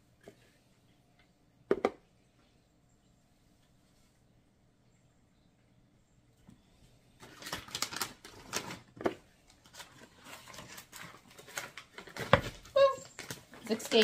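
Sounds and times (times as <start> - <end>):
foil bag crinkling: 7.2 - 14.0.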